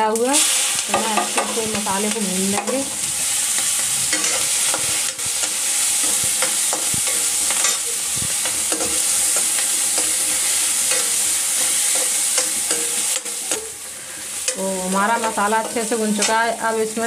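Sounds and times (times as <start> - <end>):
food sizzling in hot oil: 0.0 - 17.0
metal ladle scraping a pan: 2.6 - 13.8.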